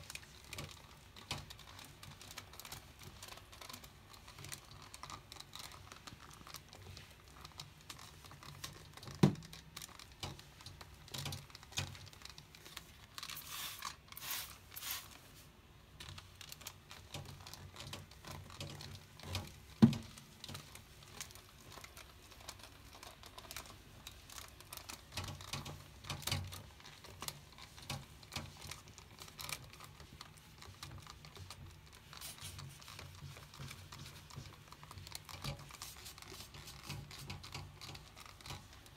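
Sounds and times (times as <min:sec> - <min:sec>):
spray bottle hissing: 0:13.4 - 0:15.1.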